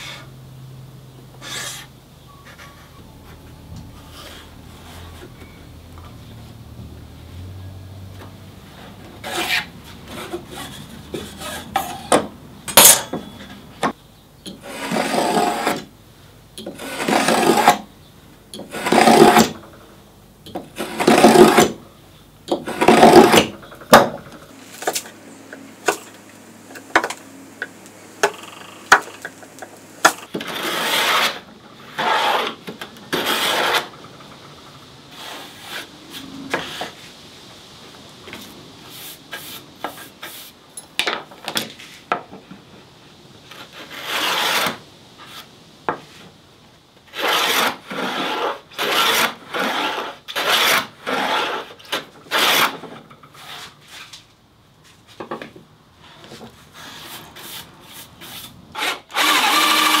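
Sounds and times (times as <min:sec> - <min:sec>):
hand tool scraping wood: 0:01.4 - 0:03.0, 0:08.7 - 0:13.0, 0:14.5 - 0:15.9, 0:16.6 - 0:17.9, 0:18.5 - 0:19.7, 0:20.5 - 0:21.8, 0:22.5 - 0:34.1, 0:35.1 - 0:37.1, 0:38.3 - 0:40.6, 0:43.5 - 0:45.5, 0:47.1 - 0:54.2, 0:56.0 - 1:00.0.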